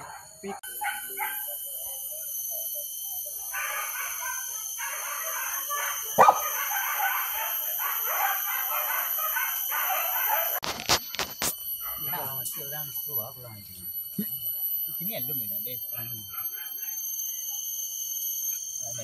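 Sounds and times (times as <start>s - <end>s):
high insect drone: 0.0s - 19.0s
dogs yelping and baying: 3.5s - 10.6s.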